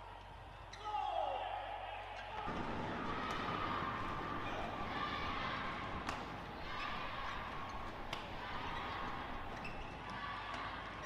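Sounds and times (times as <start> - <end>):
rackets striking shuttlecock: 6.0 - 9.9.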